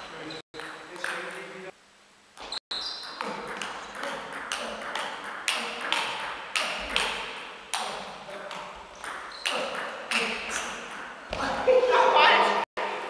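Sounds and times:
table tennis ball hits: 0.6 - 1.4, 3.0 - 11.6.

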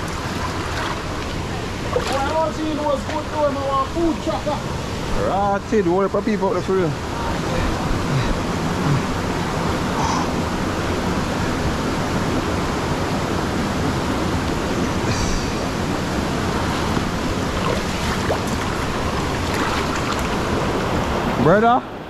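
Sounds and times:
river water rushing over rocks: 0.0 - 22.0.

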